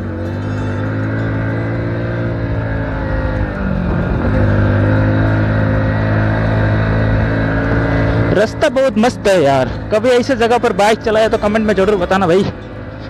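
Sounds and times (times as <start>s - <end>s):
motorcycle engine under load: 0.0s - 13.0s.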